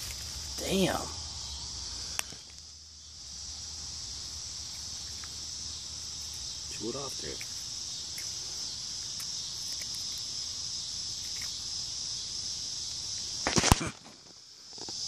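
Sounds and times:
rustling and handling noise: 0.0s - 0.7s
insect chorus trilling: 0.0s - 15.0s.

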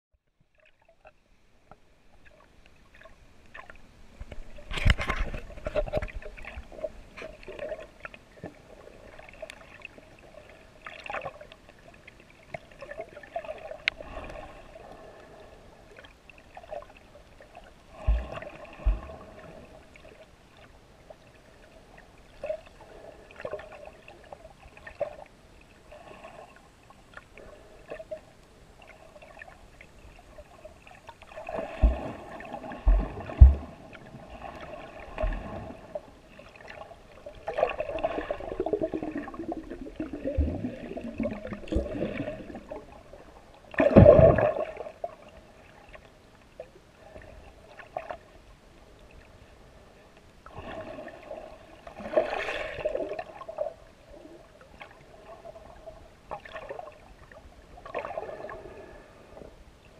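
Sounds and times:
water gurgling underwater: 17.9s - 20.2s, 28.8s - 46.0s.

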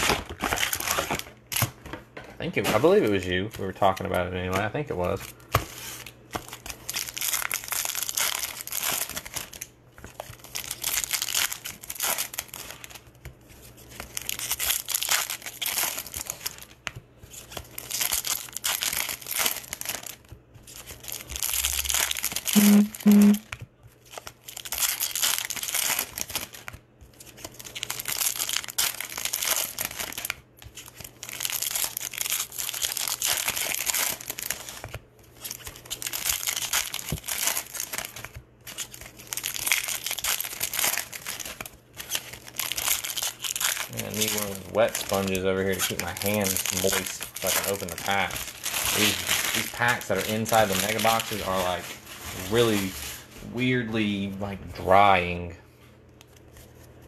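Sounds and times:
foil wrappers crinkling and tearing: 0.0s - 55.3s.

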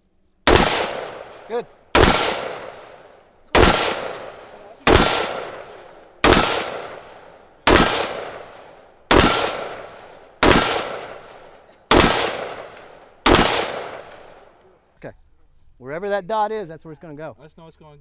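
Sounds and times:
rifle shots with echo: 0.4s - 14.6s.

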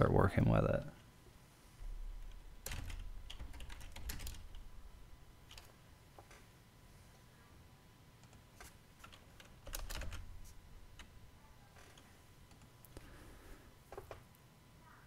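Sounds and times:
keyboard typing: 2.2s - 4.8s, 5.4s - 6.4s, 8.2s - 11.2s.

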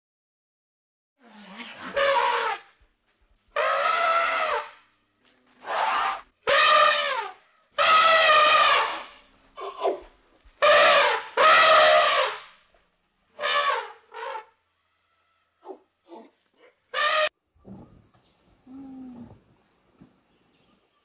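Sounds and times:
elephant trumpeting: 1.3s - 2.7s, 3.6s - 4.8s, 5.6s - 9.7s, 10.6s - 12.4s, 13.4s - 14.6s, 16.9s - 17.3s.

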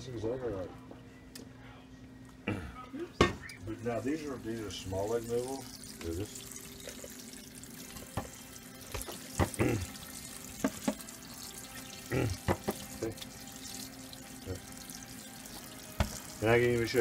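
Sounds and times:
faucet water running into sink: 3.8s - 17.0s.

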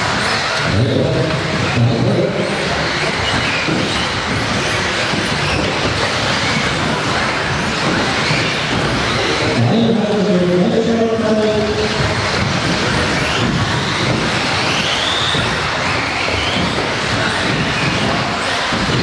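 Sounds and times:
tyre noise on carpet: 11.0s - 19.0s.

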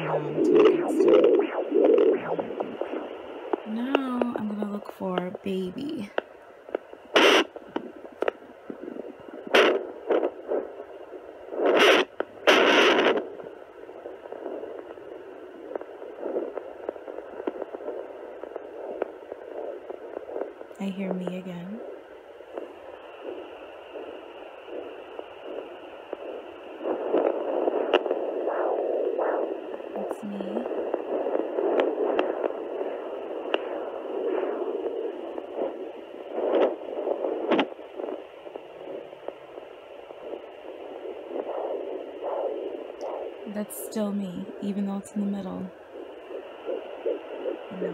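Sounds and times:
doppler static hiss: 0.0s - 47.9s
probe scratchy crackles: 0.0s - 47.9s.

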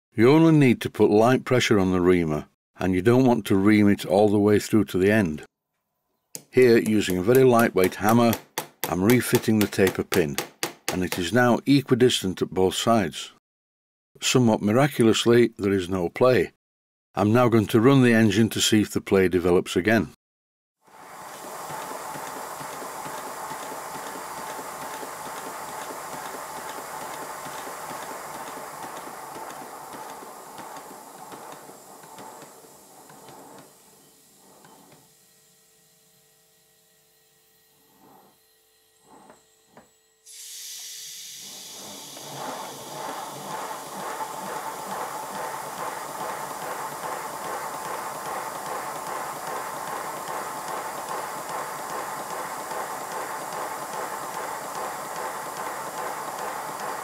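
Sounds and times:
air hissing: 20.9s - 35.1s, 37.7s - 38.4s, 40.3s - 57.0s
rapid exhaust beats: 21.1s - 35.0s, 41.6s - 57.0s
knocks from locomotive motion: 21.5s - 33.8s.

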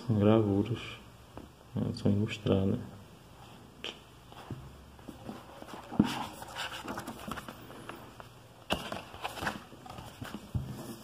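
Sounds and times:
book pages rustling: 4.3s - 11.0s.

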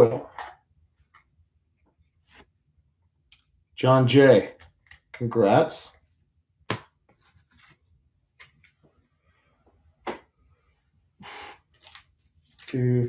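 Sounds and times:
trading cards clicking and rubbing: 11.6s - 12.8s.

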